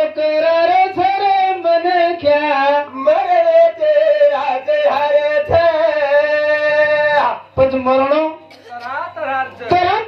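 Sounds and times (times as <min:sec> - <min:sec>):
man singing into a microphone: 0:00.0 - 0:08.4.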